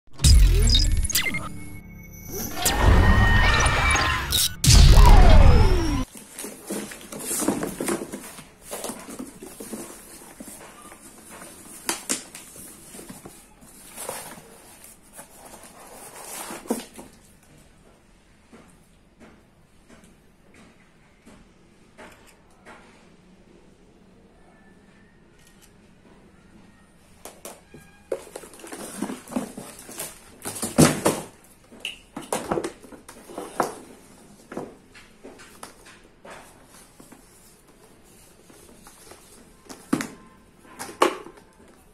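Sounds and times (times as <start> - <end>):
cardboard and paper rustling: 6.0 - 17.4, 27.8 - 41.9.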